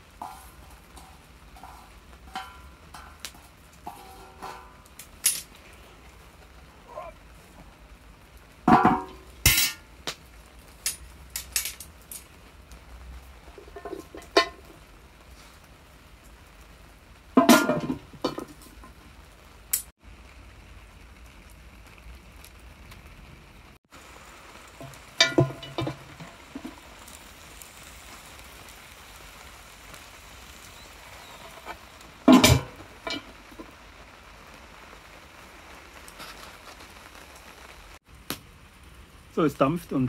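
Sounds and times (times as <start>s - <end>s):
steady low hiss: 0.0s - 40.0s
pot lid clanking on pot: 0.2s - 3.3s, 3.9s - 4.8s, 8.7s - 9.8s, 25.2s - 26.0s, 32.3s - 33.2s.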